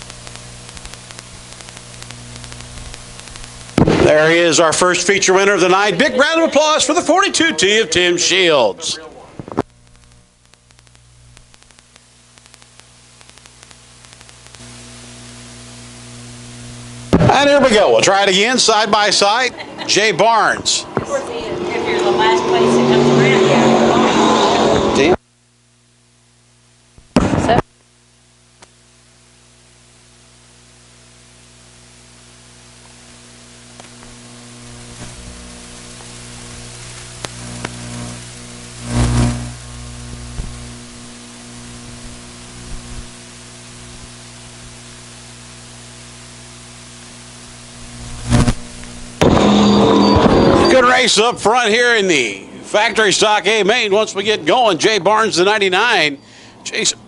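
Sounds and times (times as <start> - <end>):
steady hiss with crackles: 0.0 - 21.9, 25.0 - 57.0
higher-pitched hum: 0.0 - 26.0, 31.4 - 57.0
low electrical hum: 0.0 - 57.0
deep engine rumble: 19.6 - 25.2
race car engines rushing: 20.6 - 25.2.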